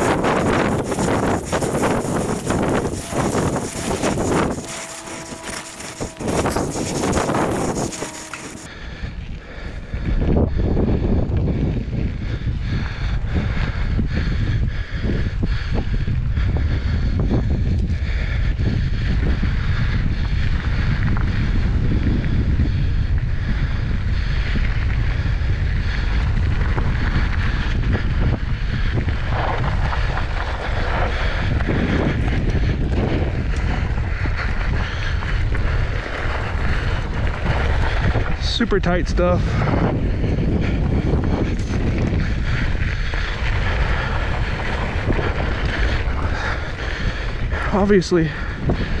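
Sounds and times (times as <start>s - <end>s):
tyres crunching over dirt: 0.0s - 8.7s, 40.8s - 48.3s
bike rattling: 0.0s - 49.0s
wind on microphone: 0.0s - 49.0s.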